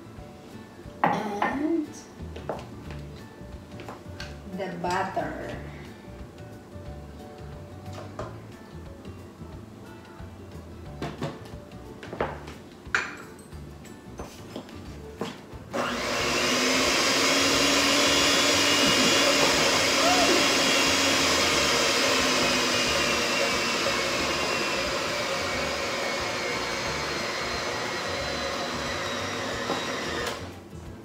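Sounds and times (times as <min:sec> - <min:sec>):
stand mixer running: 0:15.7 - 0:30.5.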